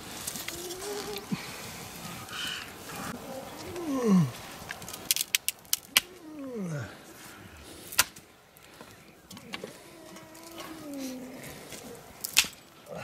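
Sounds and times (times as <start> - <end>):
low falling calls: 0.0 - 13.0
dry sticks snapping: 4.6 - 6.2, 7.9 - 11.0, 11.7 - 13.0.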